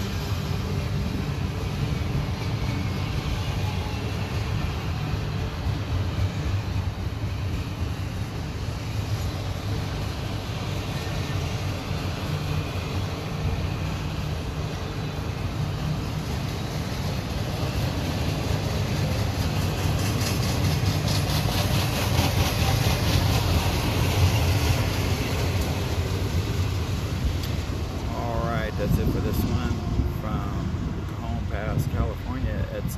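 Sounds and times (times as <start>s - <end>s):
clicking train wheels: 0.0s - 31.4s
train wheels rumbling on rail: 0.0s - 32.9s.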